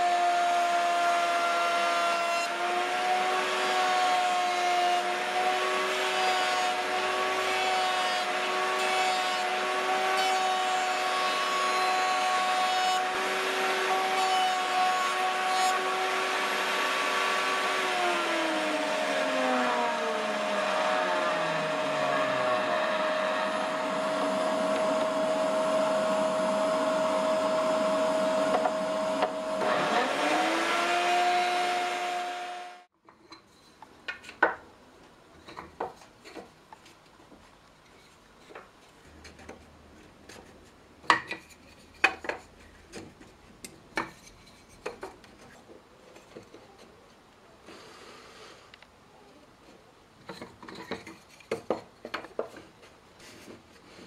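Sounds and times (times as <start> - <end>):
electric cutting tool machining wood: 0.0 - 32.9
shop vacuum running: 0.0 - 32.9.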